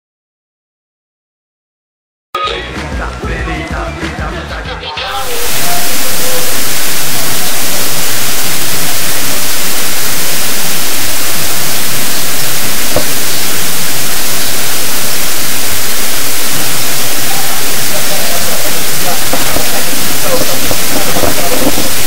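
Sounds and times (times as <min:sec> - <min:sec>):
static-like hiss: 0:05.1 - 0:22.0.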